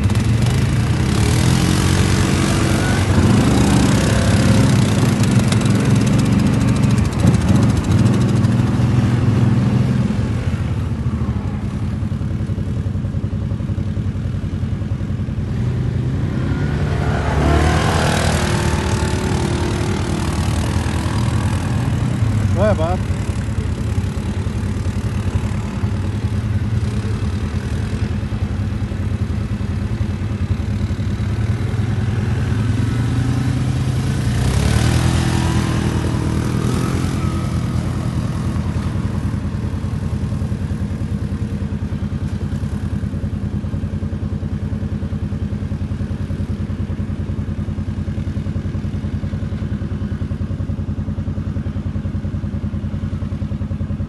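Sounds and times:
quad engine revving over rocks: 0:00.0 - 0:09.9, 0:16.1 - 0:28.2, 0:31.1 - 0:40.0
atv engines droning: 0:00.0 - 0:54.0.

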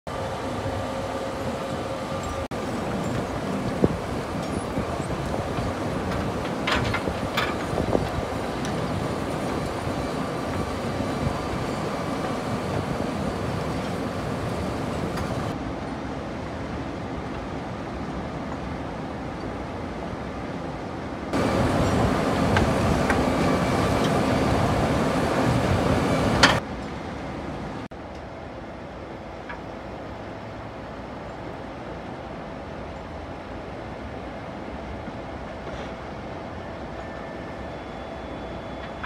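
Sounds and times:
excavator running: 0:00.1 - 0:15.6, 0:21.3 - 0:27.8.

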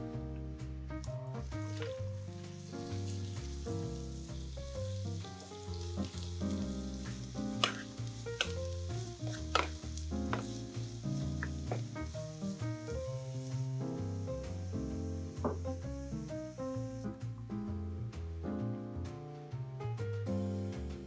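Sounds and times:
background music: 0:00.0 - 0:21.0
onions sizzling in oil: 0:01.0 - 0:17.2, 0:20.3 - 0:21.0
spatula taps: 0:05.4 - 0:12.1.

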